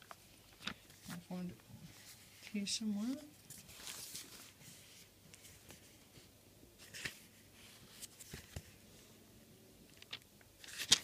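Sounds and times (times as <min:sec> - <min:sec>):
thin pages rustling: 0:00.0 - 0:08.8, 0:09.9 - 0:11.0
page flicks: 0:10.0 - 0:11.0.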